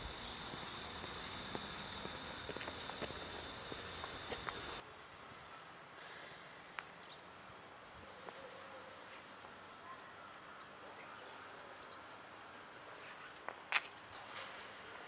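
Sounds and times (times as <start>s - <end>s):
faint high chirps: 0.0s - 4.8s
low hiss: 0.0s - 8.0s.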